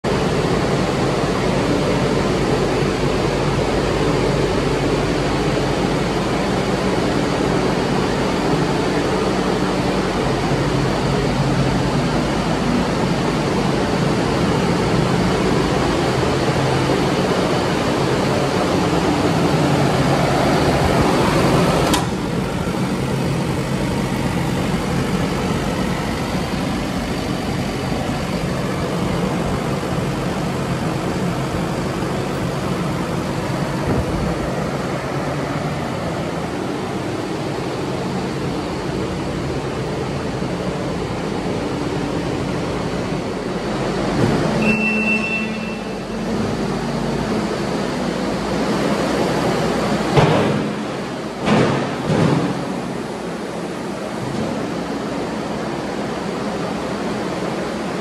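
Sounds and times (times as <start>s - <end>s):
diesel engine running: 0.0s - 58.0s
short high tone: 44.6s - 46.3s.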